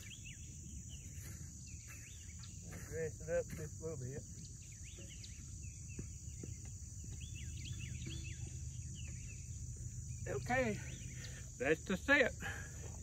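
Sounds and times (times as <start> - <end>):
bird chirping: 0.0 - 13.0
insects droning: 0.0 - 13.0.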